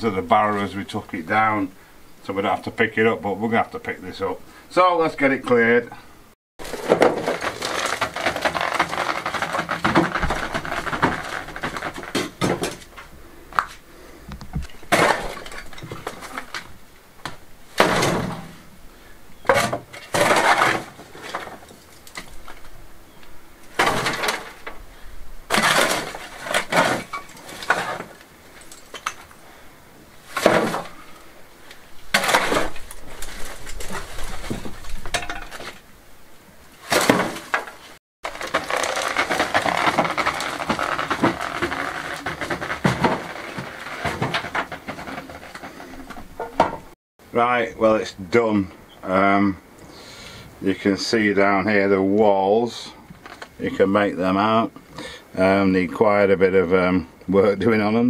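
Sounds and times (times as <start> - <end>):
rubble clattering into wheelbarrow: 6.6 - 13.1, 14.6 - 18.7, 19.4 - 22.8, 23.6 - 24.9, 25.5 - 29.4, 30.2 - 35.9, 36.8 - 47.0
rubble scraping on stone floor: 6.6 - 13.1, 14.6 - 16.8, 19.5 - 22.8, 23.6 - 29.4, 30.2 - 35.8, 36.8 - 46.7.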